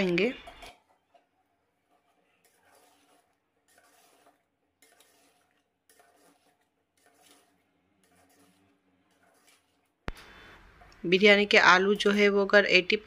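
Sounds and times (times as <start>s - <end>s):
metal spoon scraping pot: 0.1s - 10.0s.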